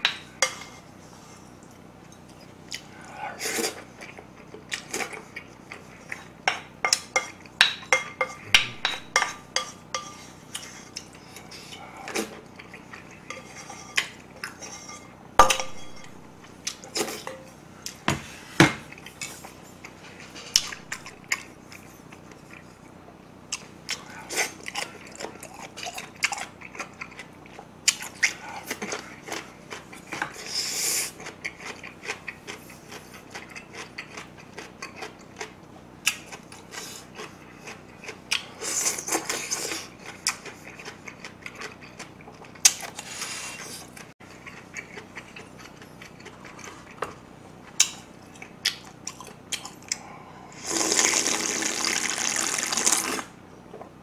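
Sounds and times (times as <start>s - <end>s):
chopsticks tapping a bowl: 6.9s - 10.2s
metal spoon scraping steel bowl: 13.3s - 15.1s
crunchy chewing: 18.9s - 50.1s.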